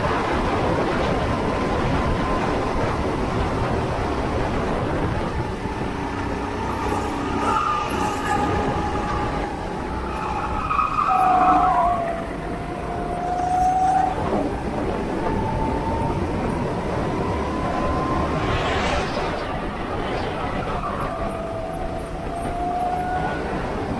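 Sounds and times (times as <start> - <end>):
steady rushing noise: 0.0 - 23.9.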